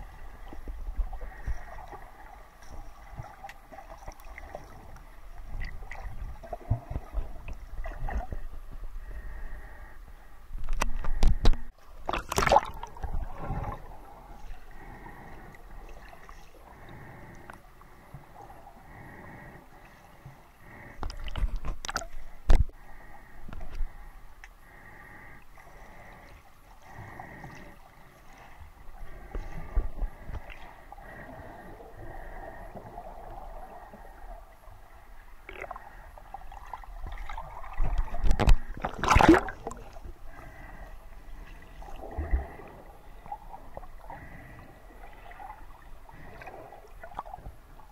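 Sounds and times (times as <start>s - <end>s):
underwater splashing and bubbles: 0.0s - 9.8s, 10.5s - 24.0s, 24.7s - 47.9s
muffled underwater water wash: 0.0s - 47.9s.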